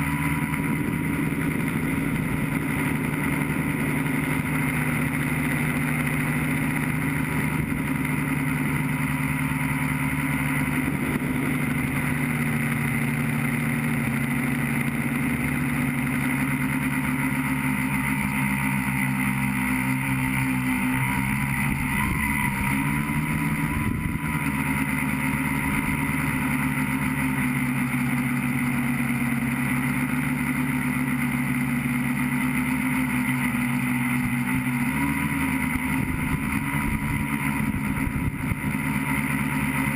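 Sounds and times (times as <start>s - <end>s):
electric motors and propellers whirring: 0.0s - 39.9s.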